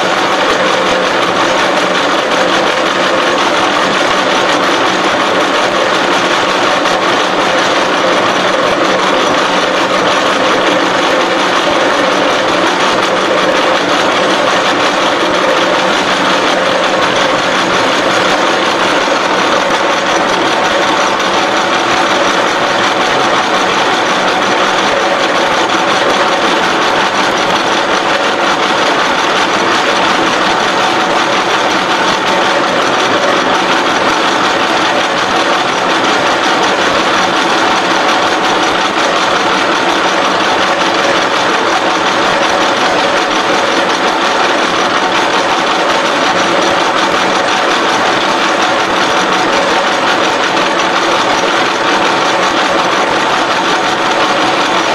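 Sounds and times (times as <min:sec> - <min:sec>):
bevelling machine cutting steel: 0:00.0 - 0:54.9.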